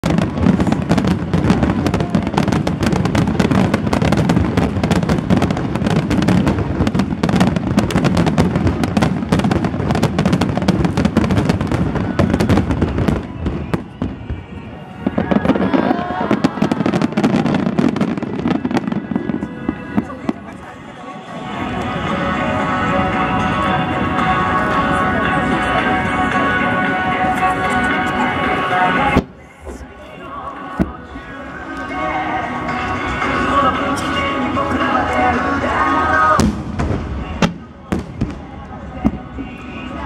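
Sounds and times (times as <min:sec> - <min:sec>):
firework booms and crackles: 0:00.0 - 0:20.6, 0:36.2 - 0:39.9.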